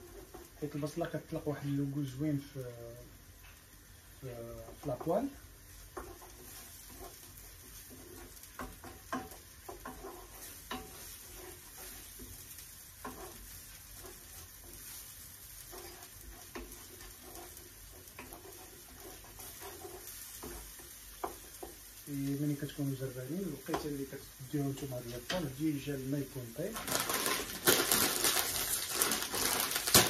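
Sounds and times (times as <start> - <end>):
wooden spatula scraping a pan: 0.0 - 2.3, 4.3 - 30.0
onion sizzling in oil: 0.0 - 30.0.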